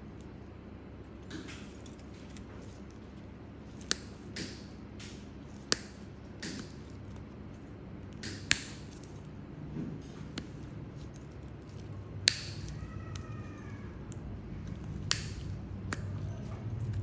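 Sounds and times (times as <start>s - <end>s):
nippers snapping through toenail: 15.0s - 16.2s.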